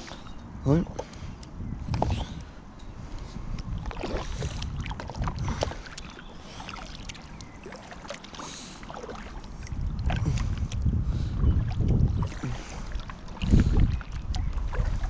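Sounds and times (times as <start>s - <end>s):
paddle splashing in water: 3.7s - 15.0s.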